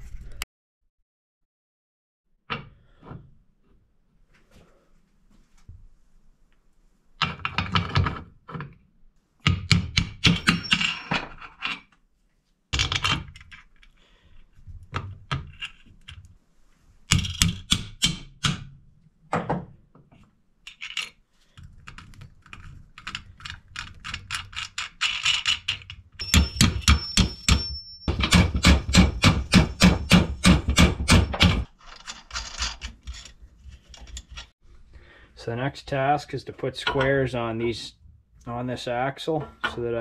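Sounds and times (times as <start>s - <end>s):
metal hardware clinking: 10.2s - 11.8s, 25.1s - 34.5s.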